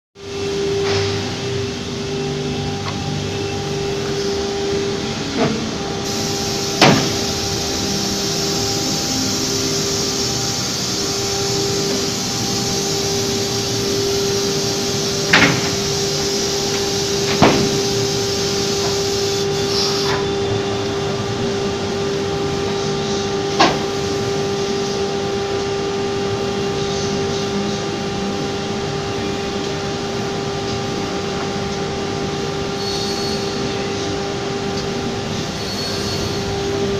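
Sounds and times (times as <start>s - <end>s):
cnc router hum: 0.2s - 36.9s
high hiss: 6.0s - 20.2s.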